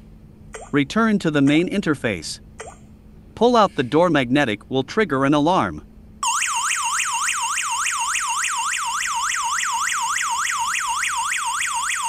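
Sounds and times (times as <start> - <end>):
electronic alarm siren whooping: 6.2 - 12.0.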